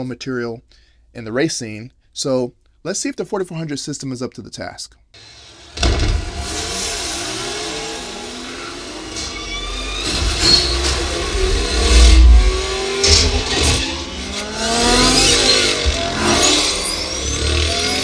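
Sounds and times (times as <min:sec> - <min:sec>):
car engines revving: 0:05.2 - 0:18.0
sharp crashes: 0:05.5 - 0:18.0
heavy bass rumble: 0:09.6 - 0:17.0.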